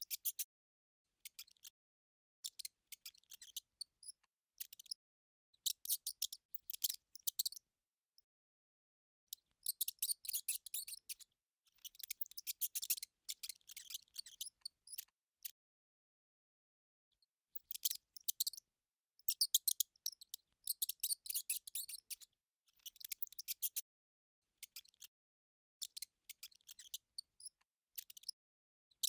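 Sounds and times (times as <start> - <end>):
mouse scratchy clicks and chirps: 0.0 - 0.5, 1.2 - 1.8, 2.4 - 7.7, 9.3 - 15.6, 17.2 - 23.9, 24.6 - 25.2, 25.8 - 29.0.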